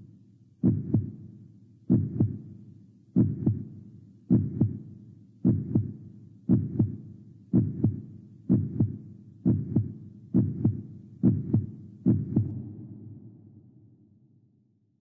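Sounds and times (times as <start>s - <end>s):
heartbeat double thump: 0.6s - 1.1s, 3.2s - 3.6s, 7.6s - 8.9s, 9.5s - 12.5s.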